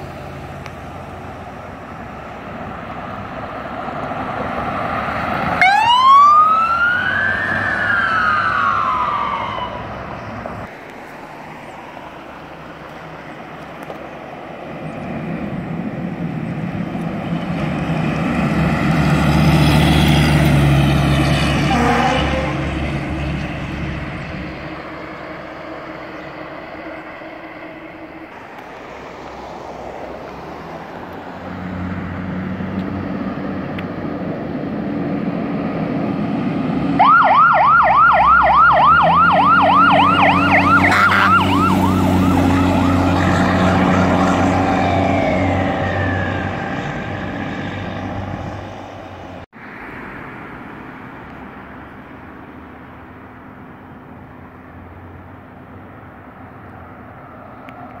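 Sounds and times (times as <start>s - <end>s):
heavy truck engine rumbling: 0.0s - 57.8s
fire truck siren wail: 1.6s - 10.7s, 15.7s - 28.1s, 35.2s - 48.9s.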